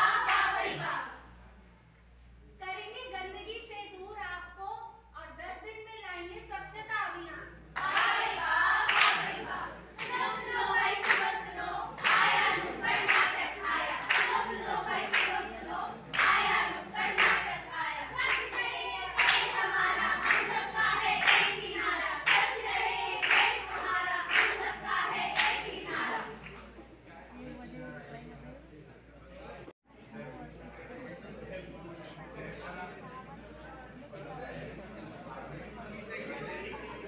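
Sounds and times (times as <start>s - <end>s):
group singing in chorus: 0.0s - 1.2s, 7.8s - 26.5s
hands clapping a steady beat: 7.8s - 26.6s.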